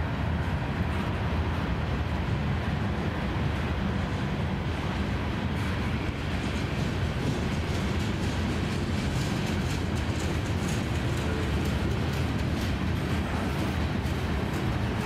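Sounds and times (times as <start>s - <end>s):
steel wheels rumbling on track: 0.0s - 15.0s.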